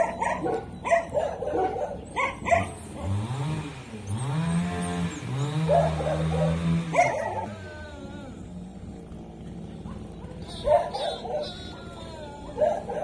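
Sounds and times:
dog barking: 0.0s - 3.2s, 5.6s - 7.6s, 9.8s - 13.0s
dog howling: 6.1s - 9.1s, 10.2s - 13.0s.

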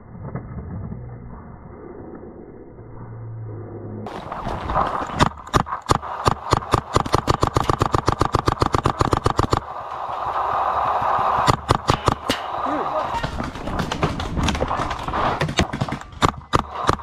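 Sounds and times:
paintball marker rapid firing: 5.0s - 17.0s.

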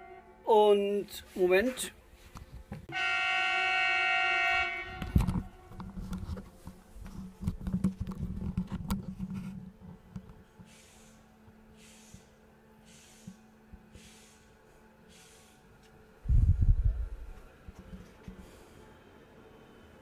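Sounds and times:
train horn blast: 0.0s - 0.5s, 2.9s - 5.8s
low rumbling hum: 4.6s - 10.6s, 16.0s - 18.6s.

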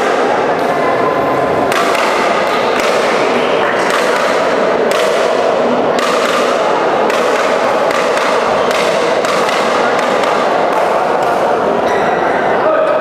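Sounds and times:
busy badminton hall din: 0.0s - 13.0s
badminton racket strikes: 1.7s - 11.6s.

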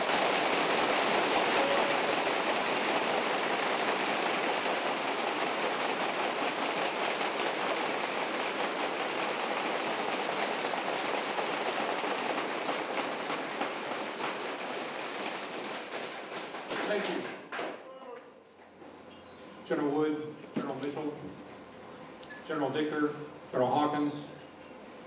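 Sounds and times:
audience applauding: 0.0s - 17.5s.

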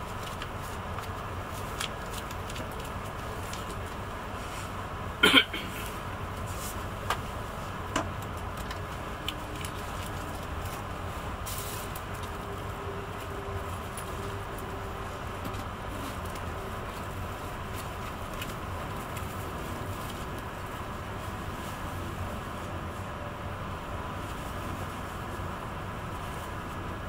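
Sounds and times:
train rumble at speed: 0.0s - 27.0s.

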